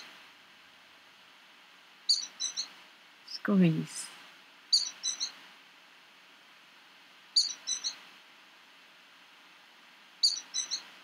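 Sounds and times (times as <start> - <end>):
songbird singing: 2.1 - 4.1, 4.7 - 5.4, 7.3 - 8.0, 10.2 - 11.0.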